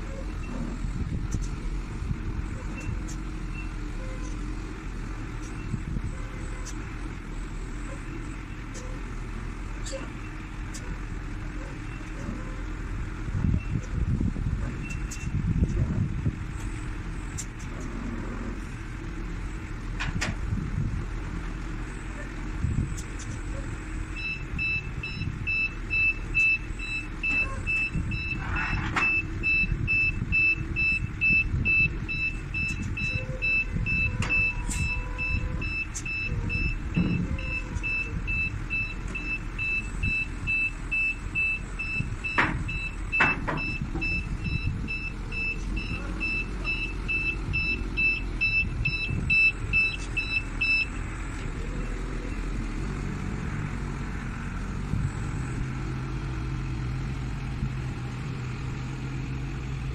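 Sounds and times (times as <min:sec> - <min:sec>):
diesel forklift engine running: 0:00.0 - 0:59.9
reverse alarm beeping: 0:24.2 - 0:51.0.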